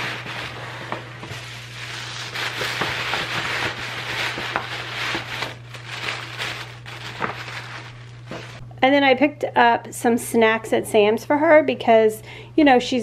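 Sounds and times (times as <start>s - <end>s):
tissue paper rustling and crinkling: 0.0s - 8.6s
steady low hum: 0.0s - 13.0s.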